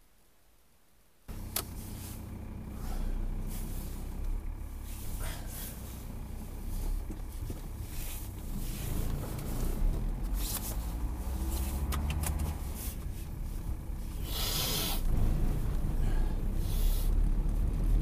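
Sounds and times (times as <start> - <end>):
car engine rumble from inside: 1.1 - 18.0
short hiss: 14.2 - 15.0.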